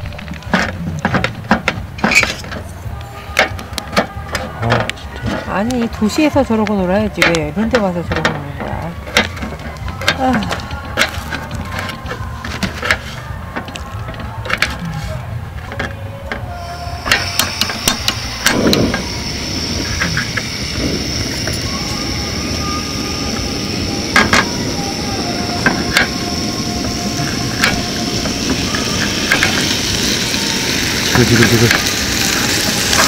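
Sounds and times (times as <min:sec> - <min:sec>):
meat sizzling: 0:06.0 - 0:14.8, 0:16.5 - 0:33.0.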